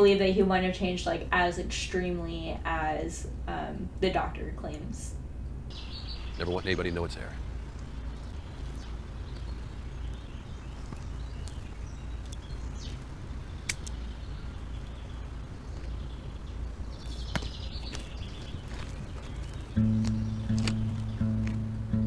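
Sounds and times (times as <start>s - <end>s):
low hum: 0.0s - 22.0s
faint bird chirps: 5.7s - 21.8s
sharp click: 13.7s - 14.0s.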